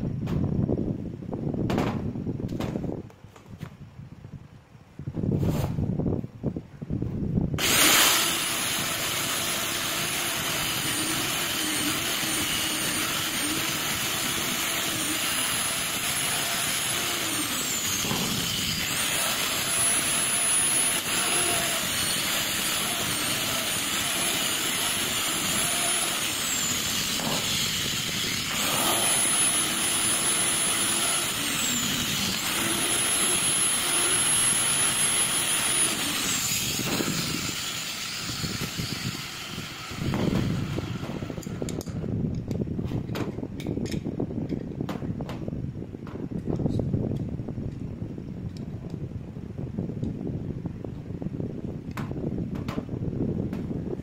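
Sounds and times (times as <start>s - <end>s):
angle grinder whining: 7.6s - 42.0s.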